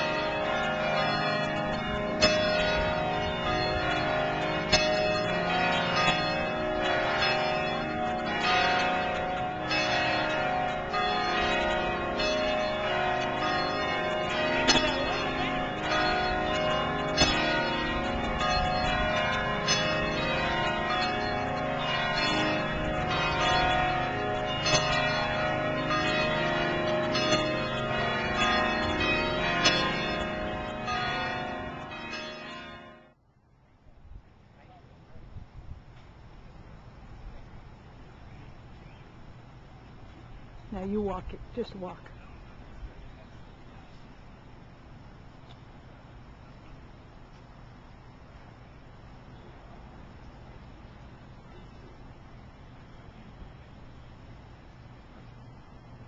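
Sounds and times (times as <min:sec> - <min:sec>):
church bells pealing: 0:00.0 - 0:33.2.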